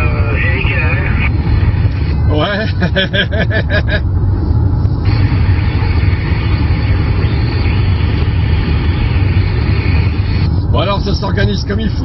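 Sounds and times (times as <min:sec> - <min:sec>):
radio open channel hiss: 0:00.0 - 0:03.1, 0:04.9 - 0:12.0
vehicle rumble inside cabin: 0:00.0 - 0:12.0.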